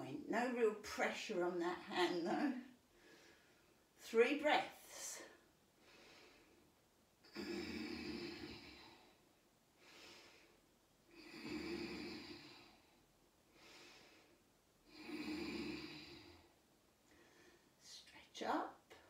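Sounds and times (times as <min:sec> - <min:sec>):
person breathing deeply: 0:17.1 - 0:17.8.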